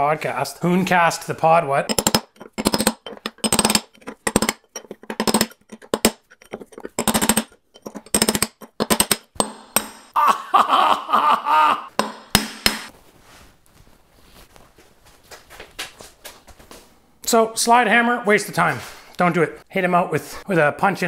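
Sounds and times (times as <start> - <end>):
hammer striking steel punch: 8.1 - 10.2, 11.9 - 12.9.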